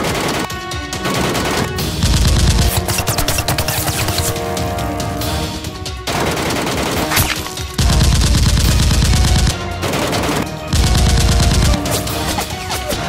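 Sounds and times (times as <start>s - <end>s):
automatic gunfire: 0.0s - 4.5s, 6.1s - 13.0s
background music: 0.0s - 13.0s.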